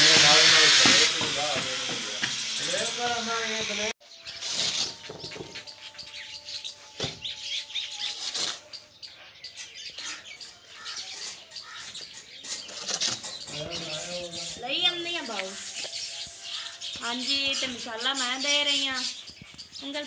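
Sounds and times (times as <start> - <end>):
shovel scraping mortar: 4.3 - 5.3, 8.0 - 8.8, 9.5 - 16.8.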